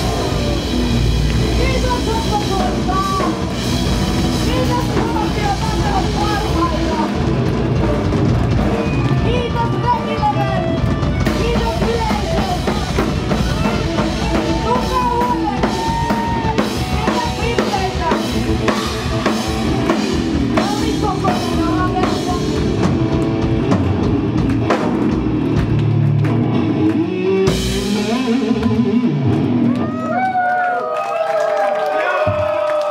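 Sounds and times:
bass drum pounding: 0.0s - 29.8s
metal band playing: 0.0s - 30.0s
distorted electric guitars: 0.0s - 30.2s
woman singing: 4.4s - 7.0s, 9.3s - 18.8s, 20.6s - 22.6s.

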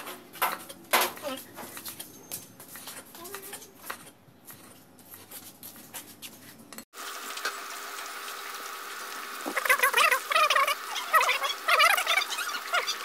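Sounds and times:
chicken deep-frying in oil: 7.0s - 13.0s.

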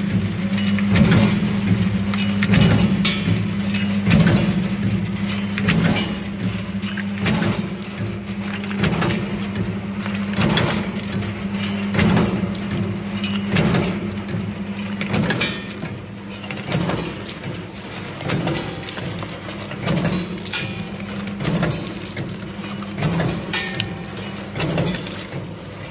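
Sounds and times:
motor hum: 0.8s - 25.9s
walnuts clattering and cracking: 6.8s - 9.3s, 9.9s - 25.9s.

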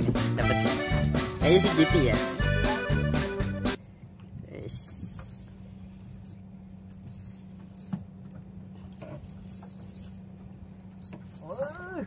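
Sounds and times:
low engine hum: 0.0s - 12.0s
fishing reel clicks and rattles: 4.9s - 11.8s.

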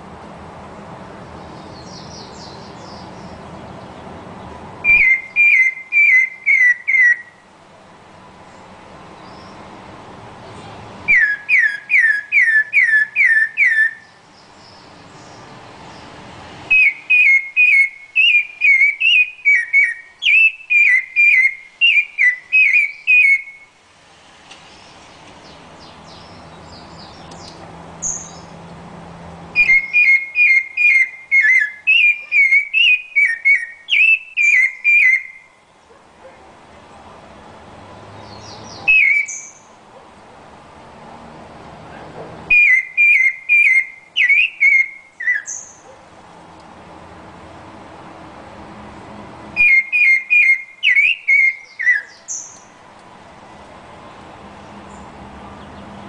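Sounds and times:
thrush singing whistled notes: 4.8s - 7.4s, 11.0s - 23.8s, 24.5s - 28.5s, 29.5s - 35.8s, 38.2s - 39.8s, 42.5s - 45.9s, 49.6s - 52.8s.

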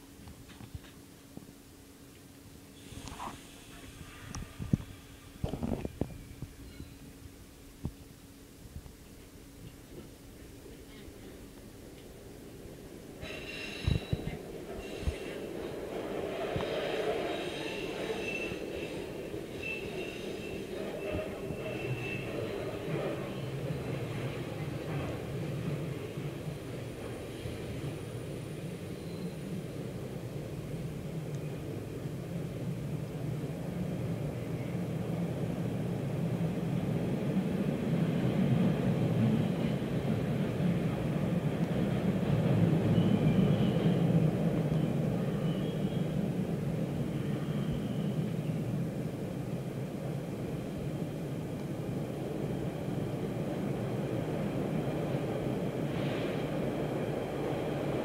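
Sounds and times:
subway train rumbling on track: 0.0s - 58.0s
faint high whine: 1.8s - 11.1s, 27.3s - 30.7s
brief hiss: 2.7s - 6.9s, 13.2s - 15.5s.

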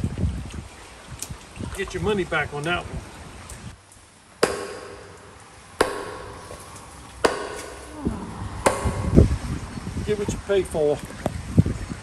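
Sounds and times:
hand tool striking wood: 4.4s - 8.0s, 8.6s - 9.3s.

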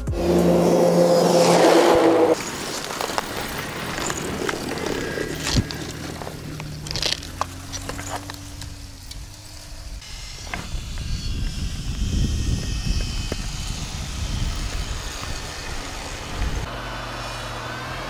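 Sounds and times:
low engine hum: 0.0s - 10.0s
tracks crackling through snow: 0.0s - 16.7s.

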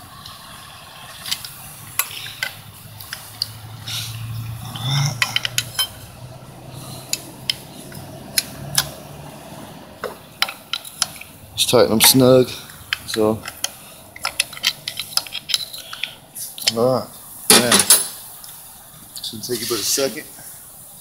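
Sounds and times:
wrench clinking on metal: 4.7s - 6.0s, 12.9s - 16.8s.

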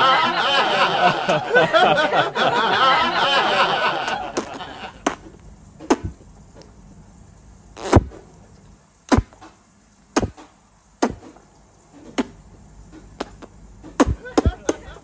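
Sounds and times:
cheek pops from punches: 5.8s - 6.2s, 9.1s - 9.5s, 10.2s - 11.3s, 13.2s - 14.7s.

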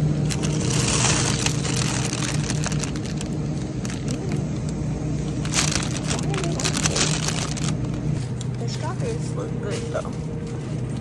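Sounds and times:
low machine hum: 0.0s - 11.0s
plastic packaging rustling: 0.1s - 8.2s.

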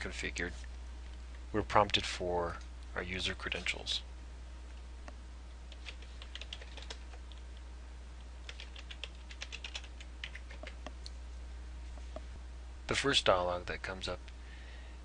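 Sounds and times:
computer keyboard typing: 5.7s - 7.4s, 8.4s - 10.9s.

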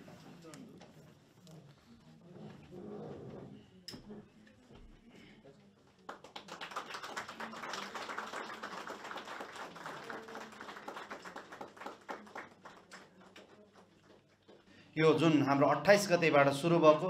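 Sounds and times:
people clapping: 5.8s - 15.4s.

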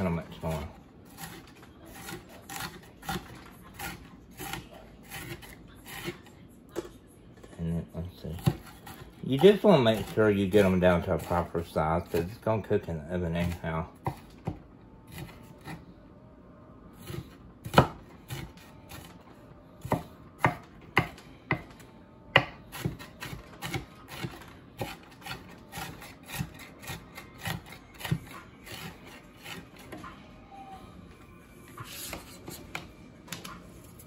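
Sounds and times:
knife chopping on wooden board: 8.4s - 11.3s, 14.0s - 15.8s, 17.0s - 19.1s, 19.8s - 21.8s, 22.4s - 29.9s.

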